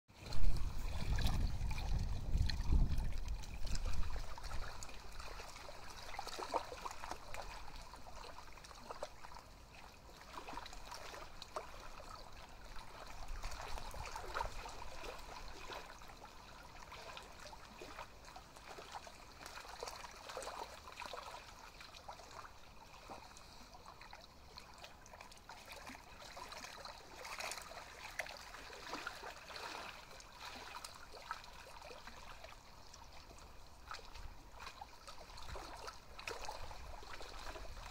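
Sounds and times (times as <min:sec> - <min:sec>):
water lapping at stony shore: 0:00.1 - 0:37.9.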